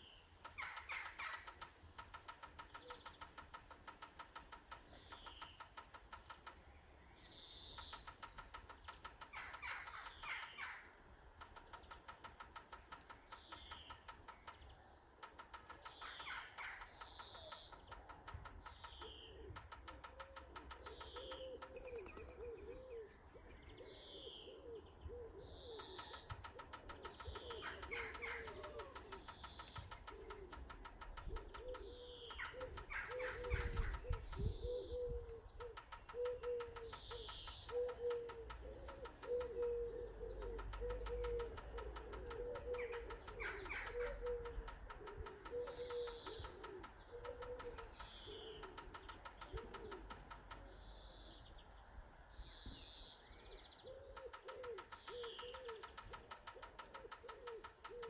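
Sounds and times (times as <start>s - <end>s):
bird rattling trill: 7.8s - 22.4s, 25.8s - 34.8s, 35.5s - 50.7s, 54.2s - 58.0s
low cooing: 19.2s - 29.2s, 31.2s - 50.3s, 53.8s - 56.0s, 56.6s - 58.0s.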